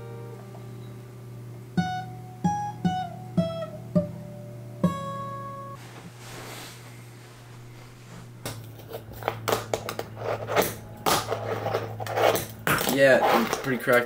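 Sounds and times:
fingerboard clacking and rolling: 9.1s - 14.0s.

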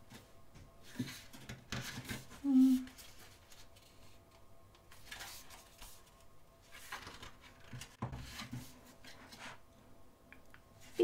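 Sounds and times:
book pages turning: 2.9s - 9.5s.

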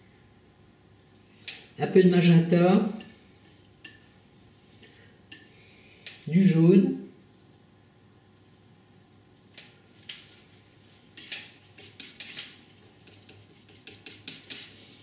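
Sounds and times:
painting knife scraping on palette: 11.1s - 15.0s.

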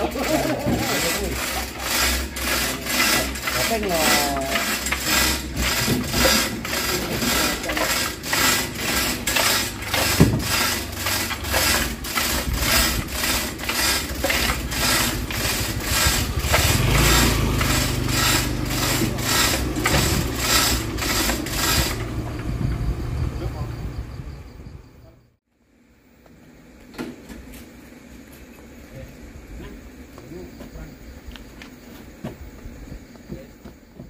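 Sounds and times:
rhythmic mechanical clacking: 0.0s - 22.9s.

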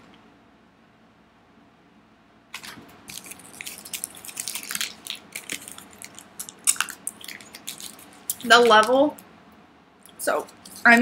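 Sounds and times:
person chewing hard candy: 2.6s - 8.9s.

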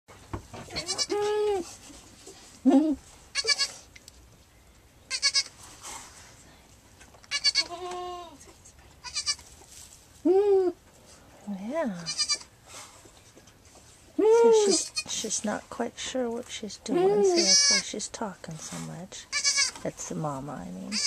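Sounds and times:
goats bleating: 17.2s - 17.8s.

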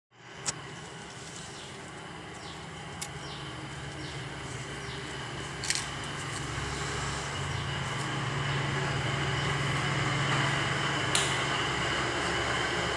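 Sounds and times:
machine humming: 0.2s - 12.9s.

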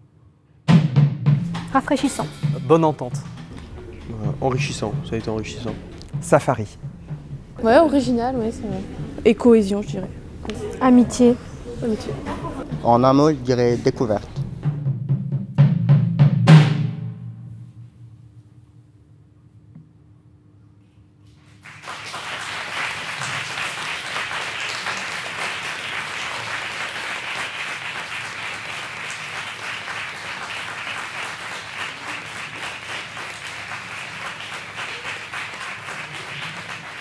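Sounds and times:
audience applause: 21.4s - 37.0s.

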